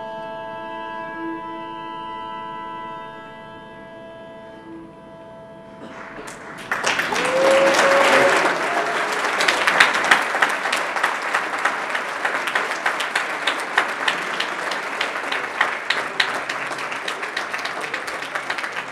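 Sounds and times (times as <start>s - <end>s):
audience applauding: 5.8s - 18.9s.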